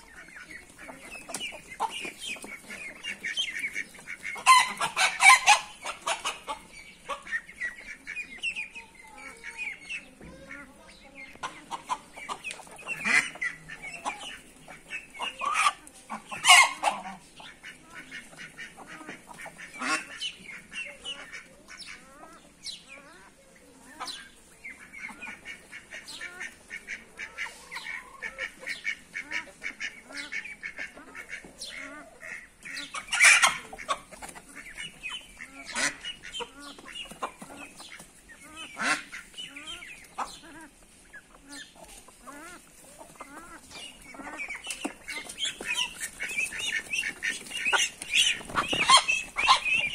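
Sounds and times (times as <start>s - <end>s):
chickens clucking: 0.0s - 49.9s.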